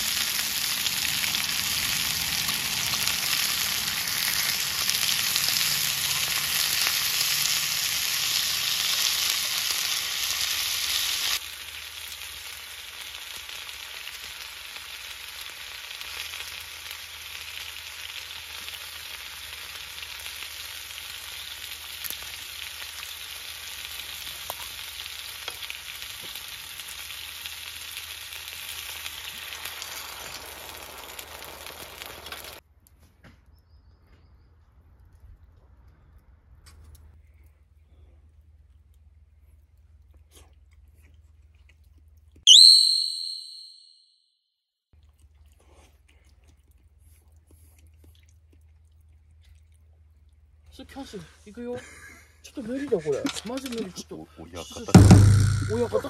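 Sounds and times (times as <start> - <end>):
meat sizzling in a skillet: 0.0 - 32.6.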